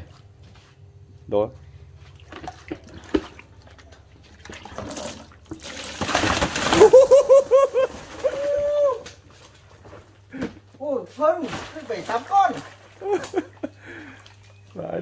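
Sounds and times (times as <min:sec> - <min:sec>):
water and fish splashing: 0:02.0 - 0:09.9, 0:11.1 - 0:15.0.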